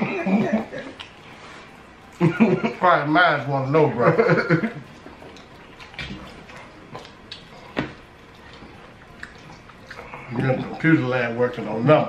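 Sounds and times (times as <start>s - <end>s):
people eating: 0.0s - 12.0s
mouth smacks and clicks: 5.3s - 10.1s.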